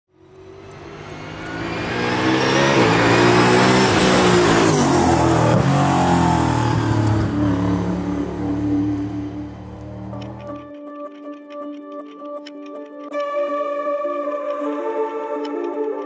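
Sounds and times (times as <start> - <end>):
race car engine at speed: 0.1 - 10.8.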